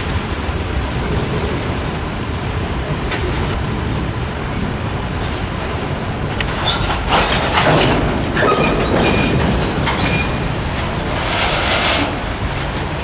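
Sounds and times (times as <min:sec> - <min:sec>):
train wheels clattering over rails: 0:00.0 - 0:13.0
high wheel squeals: 0:06.5 - 0:13.0.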